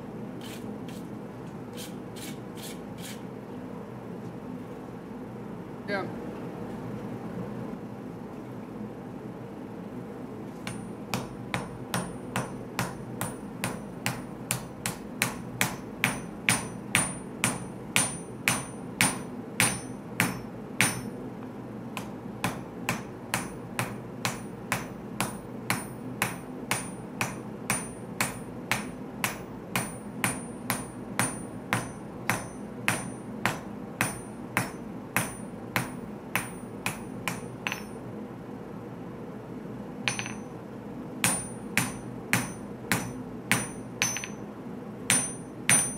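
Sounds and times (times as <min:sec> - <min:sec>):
hammer striking metal on anvil: 0:10.7 - 0:21.2, 0:22.0 - 0:38.0, 0:40.1 - 0:40.5, 0:41.2 - 0:44.5, 0:45.1 - 0:45.9.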